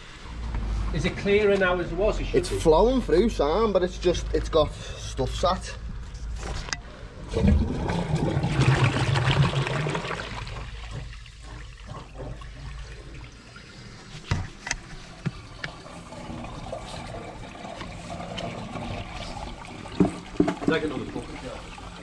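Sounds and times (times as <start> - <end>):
water rushing down drain pipe: 7.2 - 22.0.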